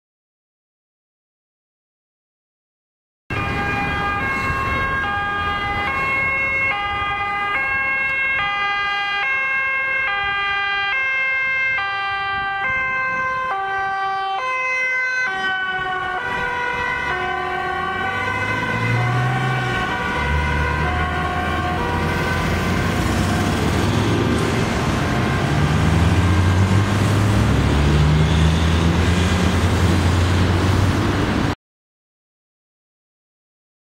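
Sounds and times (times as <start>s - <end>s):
ambulance two-tone siren: 3.3s - 30.2s
low traffic rumble: 3.3s - 31.6s.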